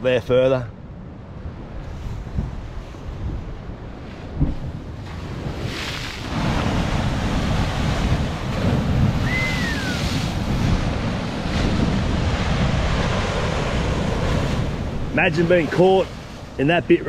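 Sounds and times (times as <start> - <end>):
wind buffeting microphone: 0.8 - 17.0
ocean swell breaking against rocks: 1.7 - 17.0
short falling whistle: 9.2 - 10.1.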